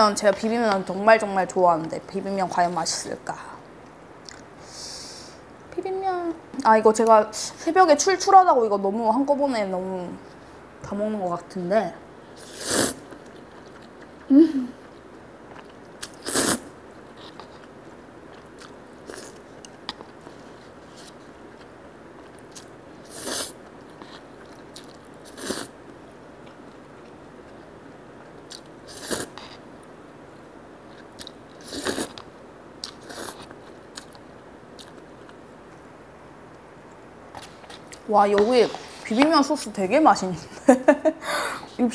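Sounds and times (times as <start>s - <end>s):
quiet chewing: 13.1s - 16.2s, 17.0s - 22.7s, 23.6s - 29.6s, 30.8s - 35.8s.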